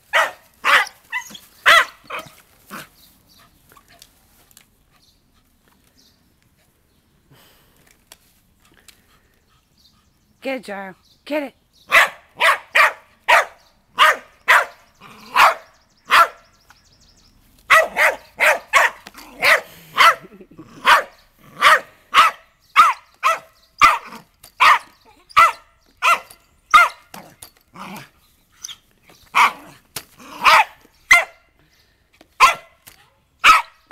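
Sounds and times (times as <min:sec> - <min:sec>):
small dog barking rapidly: 0:00.1 - 0:02.9, 0:11.9 - 0:16.4, 0:17.7 - 0:27.1, 0:29.3 - 0:31.4, 0:32.4 - 0:32.8, 0:33.4 - 0:33.9.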